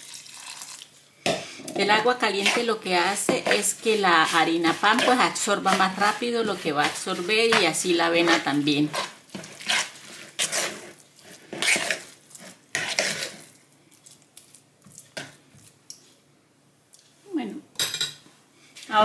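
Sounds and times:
metal spoon scraping dough in bowl: 1.9 - 13.5.

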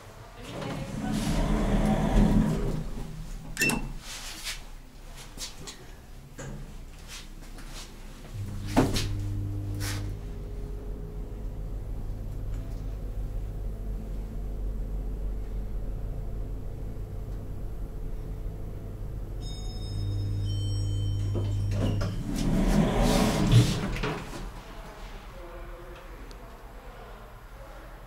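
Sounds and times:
lift drive humming: 0.8 - 4.0, 8.3 - 19.4
loud clunk: 8.4 - 9.4.

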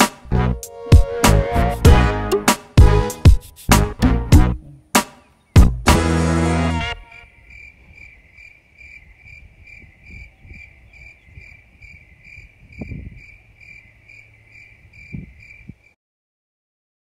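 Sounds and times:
insect chirping: 7.1 - 16.0.

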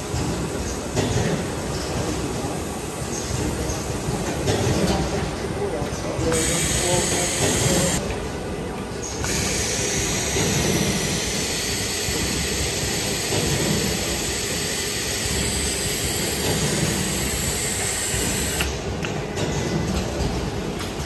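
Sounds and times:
factory machinery hiss: 6.2 - 8.0, 9.2 - 18.9.

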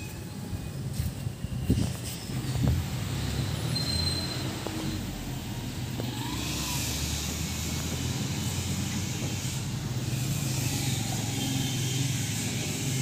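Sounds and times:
engine running: 1.8 - 13.0.

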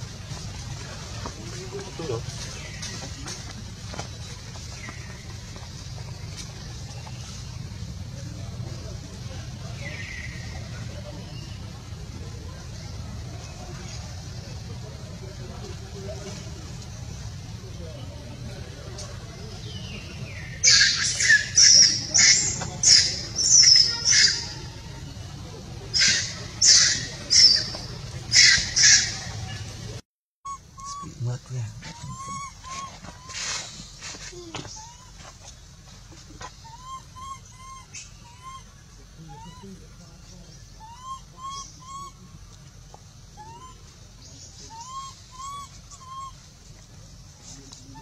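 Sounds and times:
animal squawks: 20.6 - 24.6, 25.9 - 27.7, 28.3 - 29.3, 30.5 - 33.7, 36.5 - 39.8, 40.8 - 42.2, 44.7 - 46.4.

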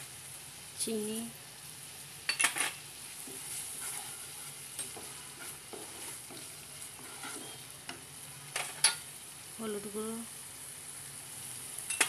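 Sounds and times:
onion paste sizzling in oil: 0.0 - 12.0
spatula scraping pan: 3.2 - 9.0.

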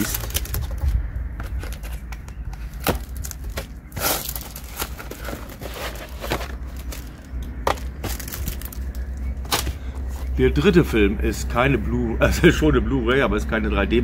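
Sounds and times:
packaging crinkling and tearing: 0.0 - 9.7
handling clicks and knocks: 0.0 - 10.4.

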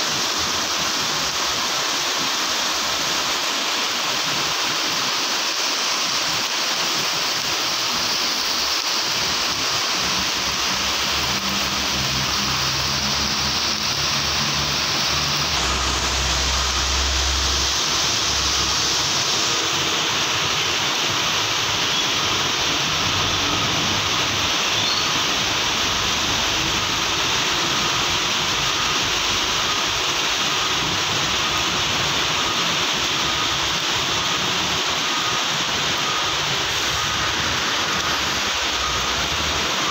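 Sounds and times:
heavy rain on wet road: 0.0 - 39.9
passing vehicle engines hum: 9.8 - 20.5.

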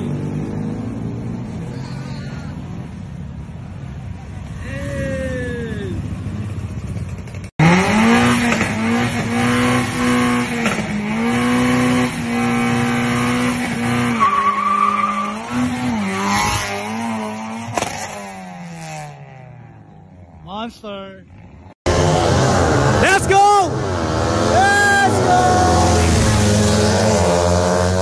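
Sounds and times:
car engine revving: 7.6 - 19.1, 21.5 - 28.0.

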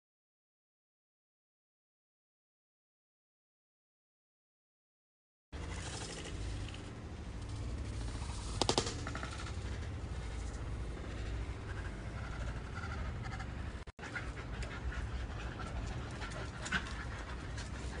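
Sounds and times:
steady low rumble: 5.6 - 18.0
dogs panting: 9.2 - 18.0.

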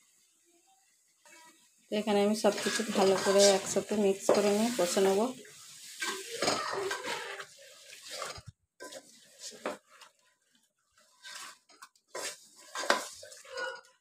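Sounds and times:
spatula scraping metal pot: 2.2 - 5.2, 5.8 - 10.2, 10.9 - 14.0.

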